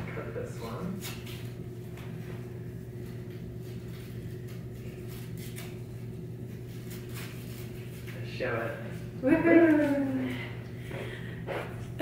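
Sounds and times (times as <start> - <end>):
low hum of room tone: 0.0 - 12.0
paper rustling: 3.0 - 8.4.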